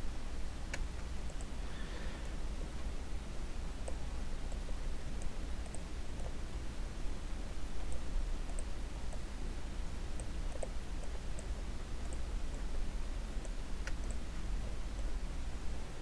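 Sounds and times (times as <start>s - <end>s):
low electrical hum: 0.0s - 16.0s
computer mouse clicks: 3.8s - 6.4s, 7.8s - 9.3s, 10.1s - 12.7s.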